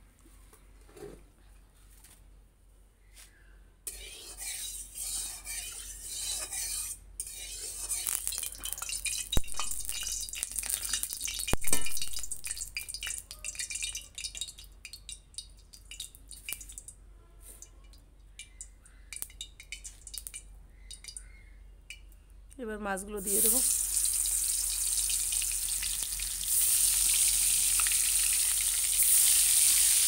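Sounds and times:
metal spatula scraping a pan: 3.9 - 11.4
oil crackling and sizzling: 3.9 - 17.0, 17.6 - 21.3, 23.2 - 30.0.

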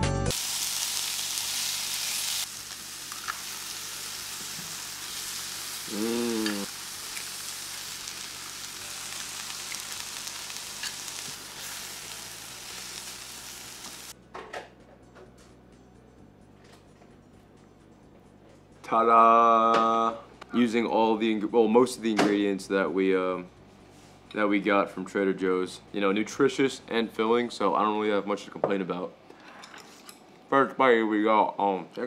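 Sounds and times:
food sizzling in a frying pan: 0.3 - 14.2
rising and falling vocal sound: 5.9 - 6.7.

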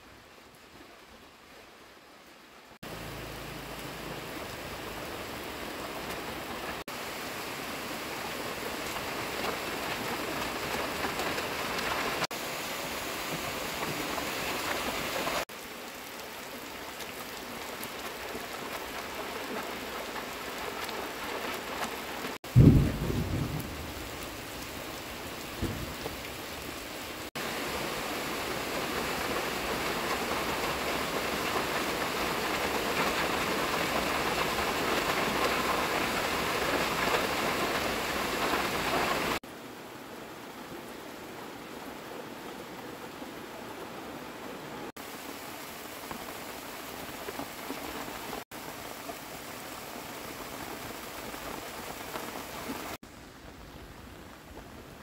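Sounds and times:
heavy rain splashing into water: 0.0 - 55.0
loud low boom: 22.6 - 23.8.

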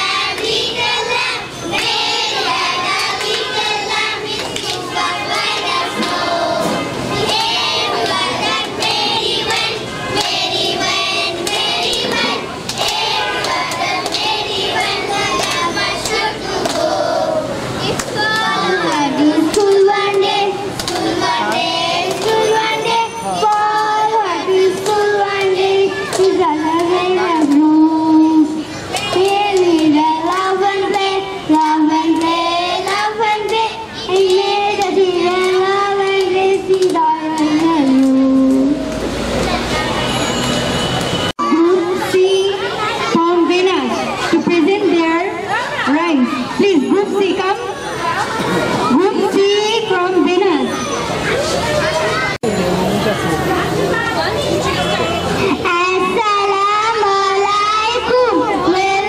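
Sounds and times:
children singing in chorus: 0.0 - 38.8.

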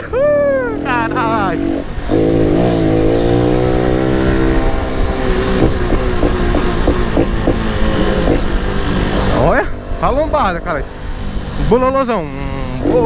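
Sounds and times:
motorcycle engine running: 0.9 - 11.8
sharp exhaust pops: 5.4 - 8.6.

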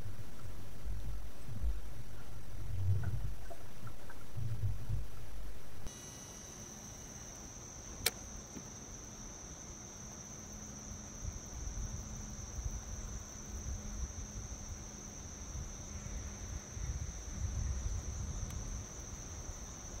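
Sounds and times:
high-pitched insect chorus: 5.9 - 20.0
sharp click: 8.0 - 8.6.

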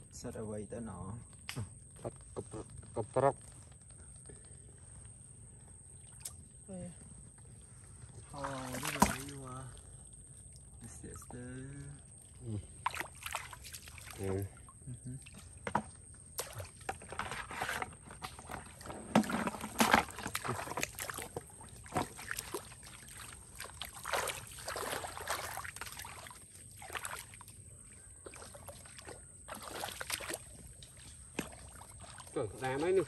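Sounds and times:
splashing in shallow water: 8.2 - 9.9, 11.2 - 33.0.

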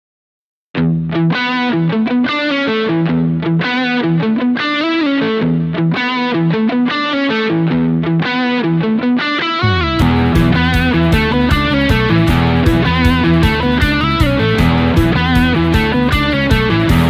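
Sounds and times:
bass guitar: 0.8 - 4.5, 5.1 - 6.8, 7.5 - 17.0
lead electric guitar melody: 0.8 - 17.0
drums: 9.6 - 17.0.

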